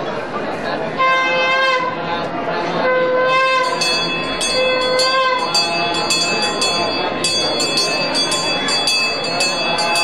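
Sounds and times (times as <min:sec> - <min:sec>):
reedy wind instrument notes: 0:02.8 - 0:10.0
bell ringing: 0:03.6 - 0:10.0.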